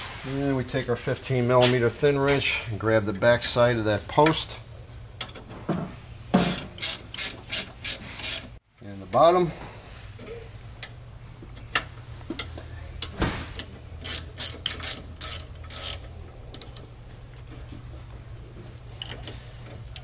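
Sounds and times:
steady low hum: 0.1s - 20.0s
ratchet wrench clicking: 6.4s - 8.6s, 13.6s - 16.8s.

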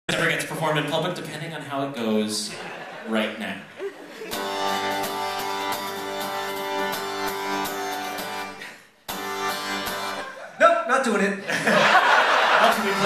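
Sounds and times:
acoustic guitar strumming: 4.3s - 10.4s, 12.5s - 13.0s.

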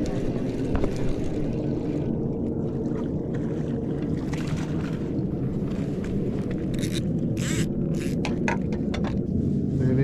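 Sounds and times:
motor drone: 6.8s - 8.3s.

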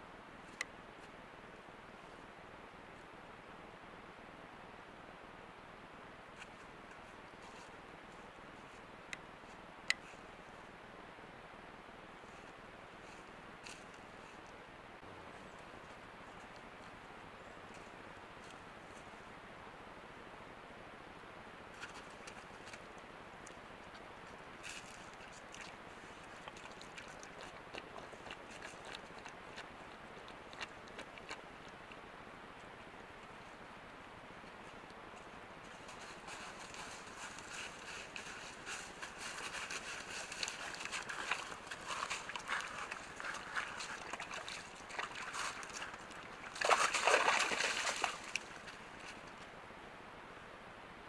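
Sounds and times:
hooves squelching in mud: 21.8s - 33.7s, 34.3s - 49.5s
hooves crackling dry leaves: 35.2s - 49.4s
splashing in puddles: 36.0s - 49.3s.

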